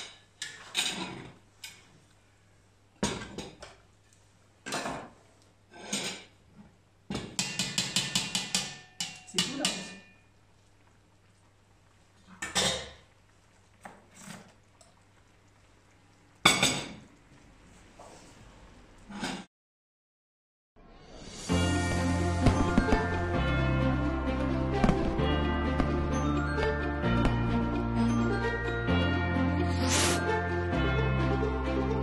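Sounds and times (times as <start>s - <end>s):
utensils scraping a wok: 29.7s - 30.3s.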